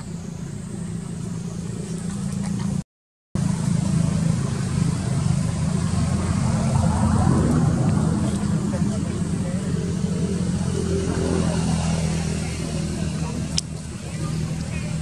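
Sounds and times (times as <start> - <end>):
steady low rumble: 3.4 - 15.0.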